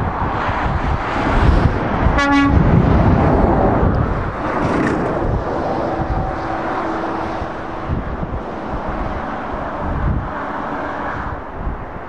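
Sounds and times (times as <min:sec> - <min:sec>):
motorway traffic passing: 0:00.0 - 0:12.0
vehicle horn toot: 0:02.2 - 0:02.6.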